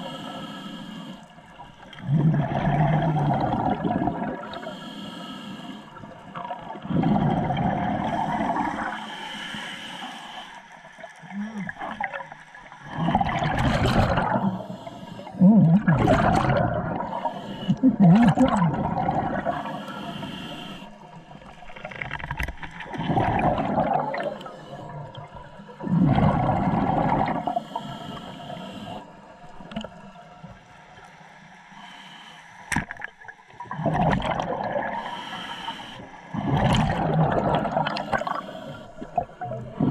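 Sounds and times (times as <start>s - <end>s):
regulator hissing inhalations: 0.0s - 1.3s, 4.5s - 6.0s, 8.2s - 10.6s, 17.0s - 17.8s, 19.6s - 21.0s, 27.6s - 29.1s, 31.8s - 32.6s, 35.0s - 36.3s
underwater exhaled bubbles gurgling: 0.0s - 30.8s, 32.7s - 39.9s.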